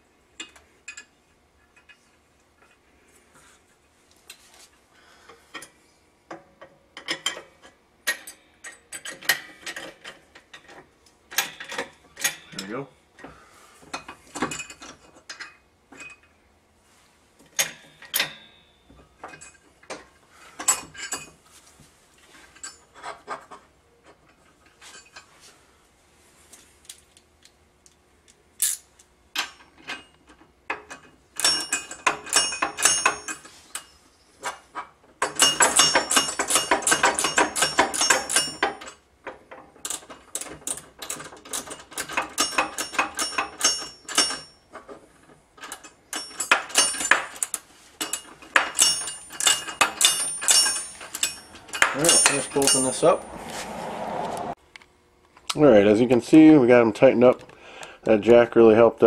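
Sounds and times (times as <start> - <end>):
metal tools clinking: 20.6 - 21.4, 22.4 - 23.6, 28.6 - 34.6, 35.2 - 39.0, 40.7 - 44.9, 45.6 - 53.5
hand ratchet clicking: 45.7 - 53.1.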